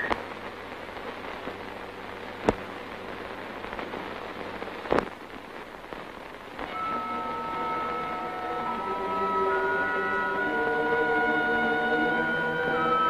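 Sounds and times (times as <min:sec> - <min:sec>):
film soundtrack hiss and crackle: 0:00.0 - 0:13.0.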